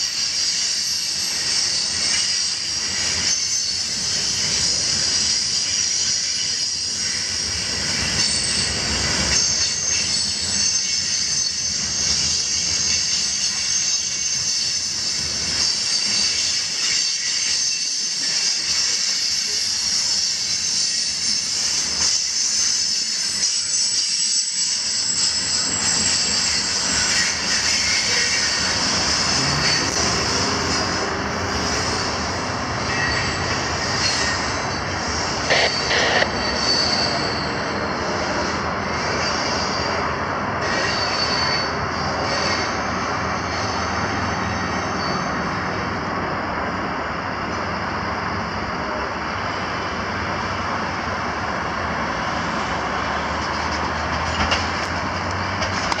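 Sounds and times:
train wheels squealing: 0.0 - 56.0
rail rumble: 24.5 - 56.0.

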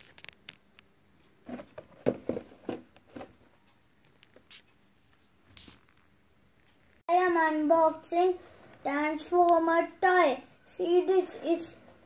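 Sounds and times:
plastic packaging crinkling and tapping: 1.5 - 3.4.

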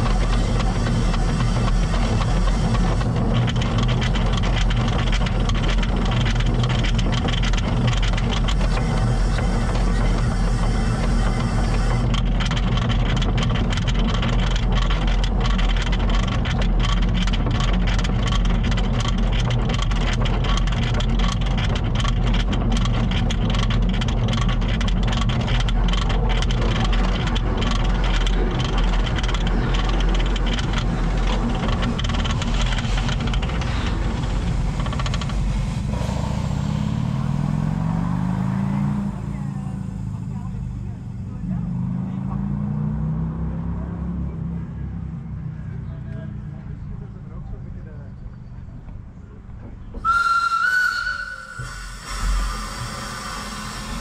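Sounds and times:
rapid clicks and knocks: 0.0 - 35.9
steam tram rumble: 0.0 - 54.0.

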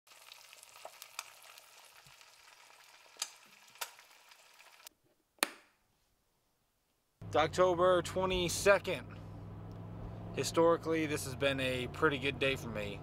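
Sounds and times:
eggs sizzling in a skillet: 0.1 - 4.9.

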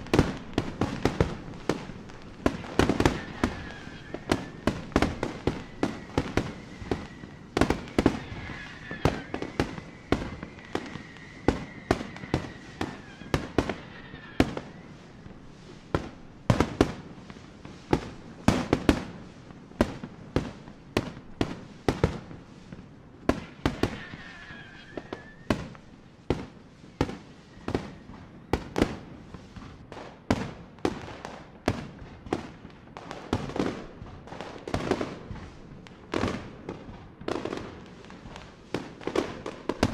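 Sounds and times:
high firework whistle: 0.0 - 19.0, 23.3 - 29.6, 38.7 - 39.9
fireworks bangs: 0.0 - 39.9.

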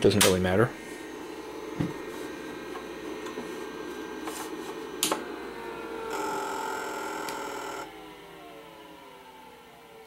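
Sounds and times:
hard drive whirring hum: 0.0 - 9.8
hard drive click: 1.7 - 5.3.

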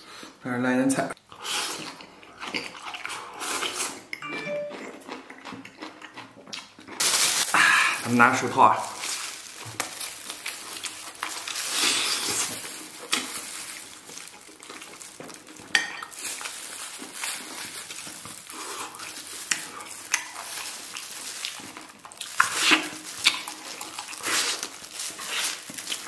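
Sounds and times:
wet chewing: 1.3 - 8.1, 8.8 - 26.0
sucking meat off bone: 22.3 - 25.8.

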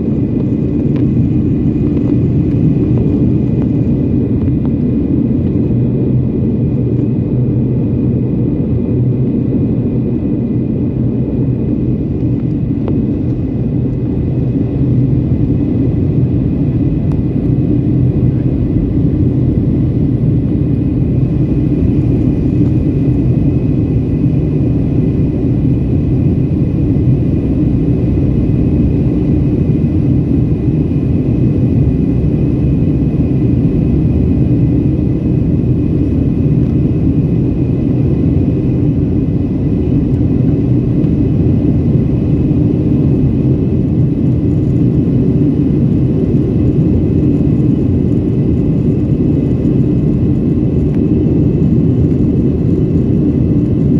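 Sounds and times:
jet engine and airflow rush: 0.0 - 53.9.

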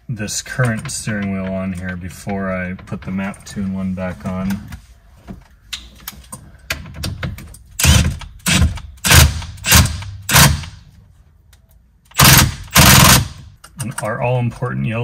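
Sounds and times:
cordless impact driver bursts: 7.8 - 10.8, 12.2 - 13.4.

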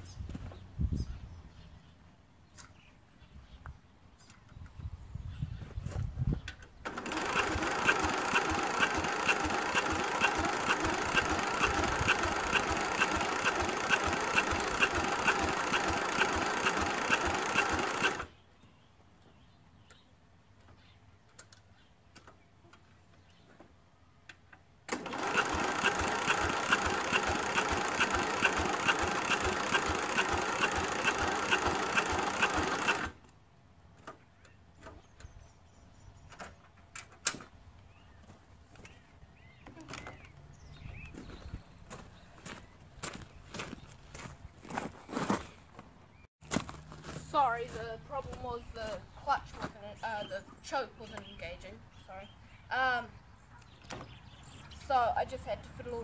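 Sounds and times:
lawn mower starter cranking engine: 6.8 - 18.4, 24.8 - 33.3.

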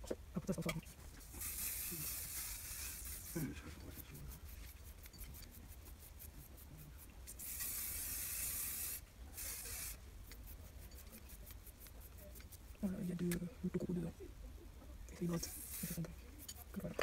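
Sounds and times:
fingers scrunching hair: 0.5 - 13.5
hair spray hissing: 1.2 - 3.6, 7.3 - 10.0, 15.3 - 16.1.

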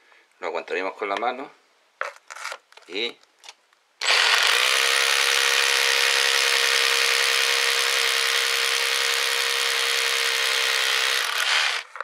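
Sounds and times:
electric drill boring into wall: 4.0 - 12.0.

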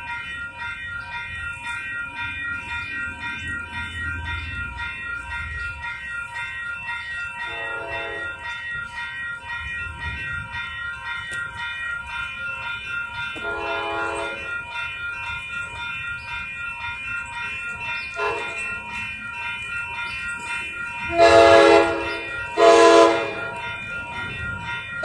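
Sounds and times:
crossing warning bell ringing: 0.0 - 25.0
train horn blasts: 13.4 - 14.4, 18.2 - 18.6, 21.1 - 23.5.

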